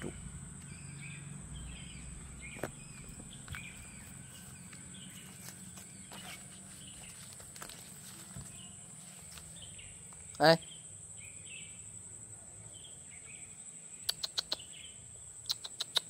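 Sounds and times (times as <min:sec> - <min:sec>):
short bird chirps: 0:14.0 - 0:16.0.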